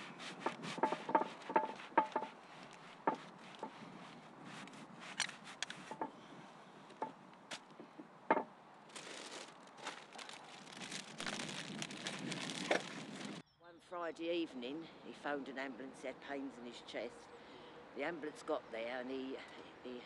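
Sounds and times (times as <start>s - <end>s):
rustling hiss with crackles: 0.0s - 7.8s, 8.9s - 13.4s.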